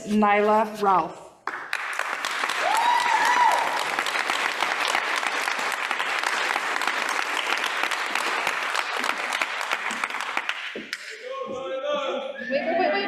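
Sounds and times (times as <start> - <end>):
audience applauding: 1.4 - 11.1.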